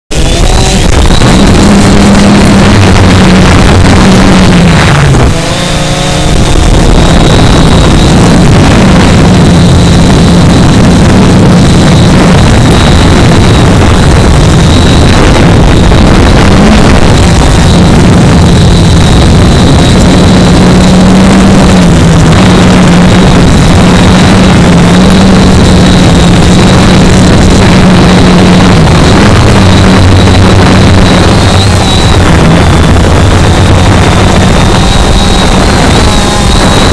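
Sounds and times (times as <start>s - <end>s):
drone motors buzzing: 0.1s - 36.9s
wind rush: 0.1s - 36.9s.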